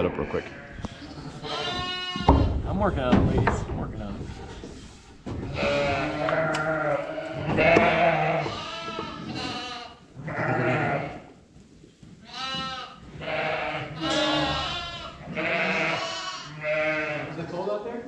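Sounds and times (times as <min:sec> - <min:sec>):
sheep bleating: 0:00.0 - 0:02.5, 0:05.5 - 0:11.3, 0:12.2 - 0:17.4.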